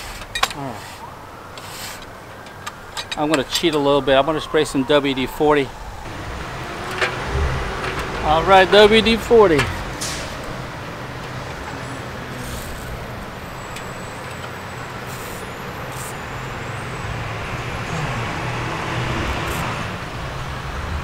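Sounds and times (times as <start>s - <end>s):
vehicle engine passing: 5.6s - 21.0s.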